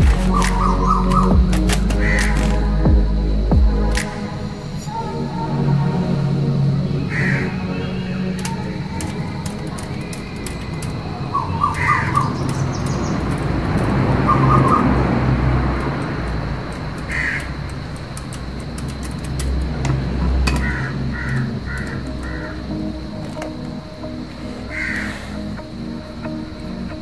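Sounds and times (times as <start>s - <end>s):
bird calling: 0.0s - 3.2s, 6.8s - 19.2s, 20.4s - 25.9s
background music: 0.0s - 17.0s, 17.6s - 27.0s.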